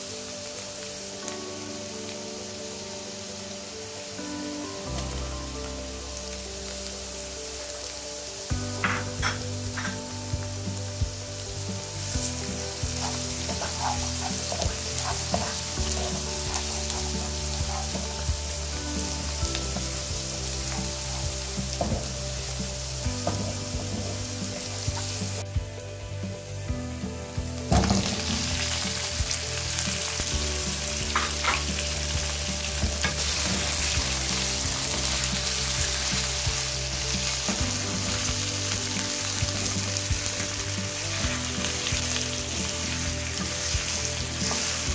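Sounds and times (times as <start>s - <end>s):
onions frying in hot oil: 0.0s - 44.9s
wooden spatula scraping pan: 11.8s - 18.7s.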